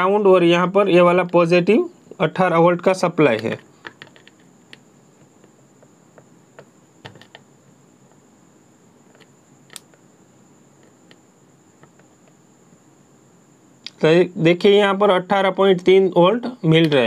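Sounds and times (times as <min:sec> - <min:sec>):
faint high-pitched whine: 0:00.0 - 0:17.0
probe tips clicking on circuit board: 0:09.1 - 0:10.0.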